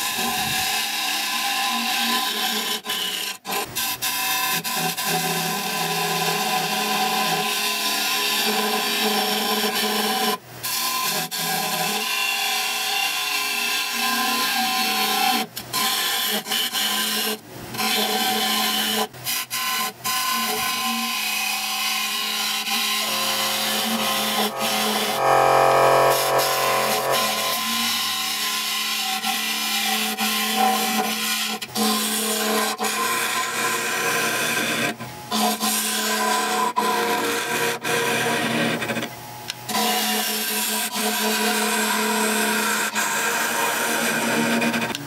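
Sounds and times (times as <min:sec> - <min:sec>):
lathe tool scraping wood: 0:21.2 - 0:30.6.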